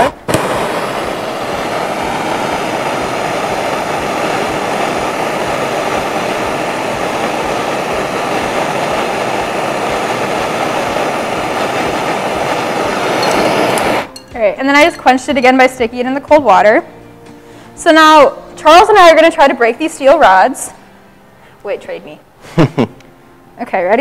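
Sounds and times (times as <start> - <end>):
blowtorch hissing: 0.0 - 14.3.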